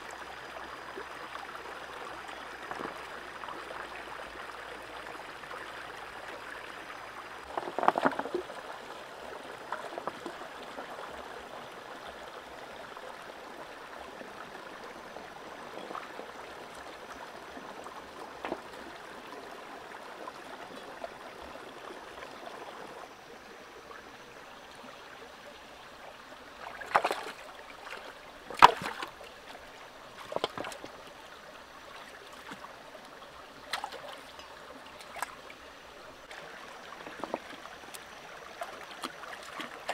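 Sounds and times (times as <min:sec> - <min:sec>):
stream flowing over rocks: 0:00.0 - 0:39.9
splashes in water: 0:26.6 - 0:31.0.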